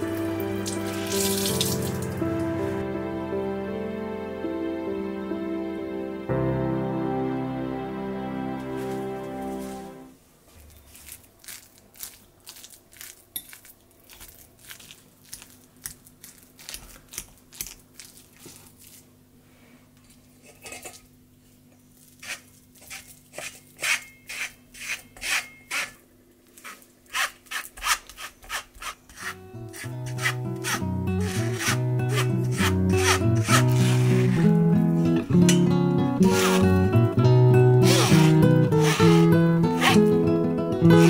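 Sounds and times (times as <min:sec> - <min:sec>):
background music: 0:00.0 - 0:10.2, 0:29.4 - 0:41.0
spoon scraping through wire sieve: 0:22.1 - 0:26.0, 0:26.6 - 0:34.6, 0:36.2 - 0:36.8, 0:37.8 - 0:40.1.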